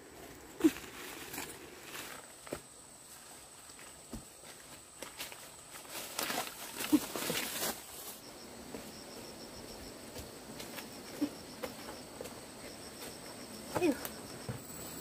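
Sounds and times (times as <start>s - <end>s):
insect chirping: 0.0s - 15.0s
light steps and rustles: 0.2s - 15.0s.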